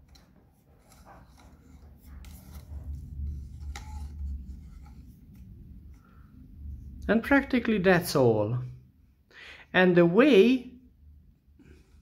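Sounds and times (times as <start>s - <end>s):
light scraping and rubbing: 0.0s - 7.0s
low handling rumble: 1.9s - 9.0s.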